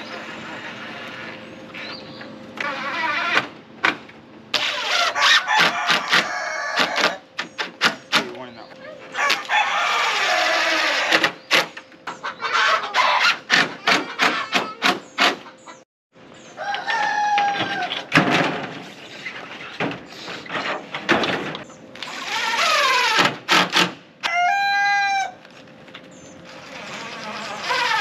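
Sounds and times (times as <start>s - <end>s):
rooster crowing: 5.1s - 7.2s, 9.2s - 11.1s, 16.6s - 18.0s, 24.2s - 25.4s
sharp knocks and clatter: 6.9s - 8.4s.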